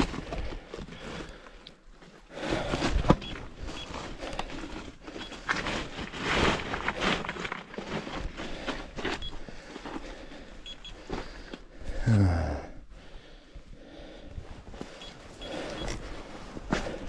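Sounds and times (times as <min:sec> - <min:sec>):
leaves and branches rustling: 0:00.0 - 0:10.3
faint high beeps: 0:10.6 - 0:11.0, 0:15.0 - 0:16.0.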